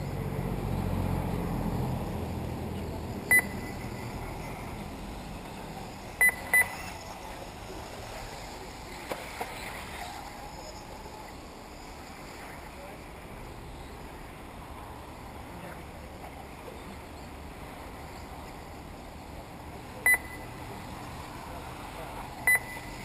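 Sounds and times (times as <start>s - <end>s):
low steady rumble: 0.0s - 23.0s
short high electronic beeps: 3.3s - 4.6s, 6.2s - 7.0s, 20.1s - 20.5s, 22.5s - 23.0s.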